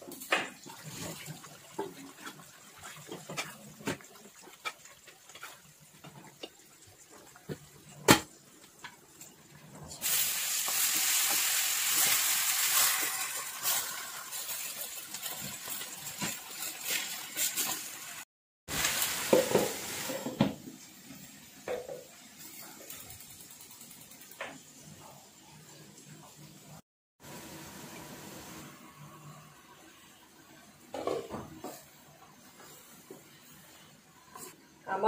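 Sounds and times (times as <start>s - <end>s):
leaves sizzling in hot oil: 9.8s - 25.3s, 26.7s - 29.9s.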